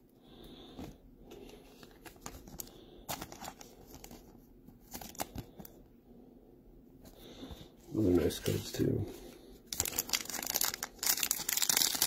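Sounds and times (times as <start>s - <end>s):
plastic packaging crinkling: 9.7s - 12.0s.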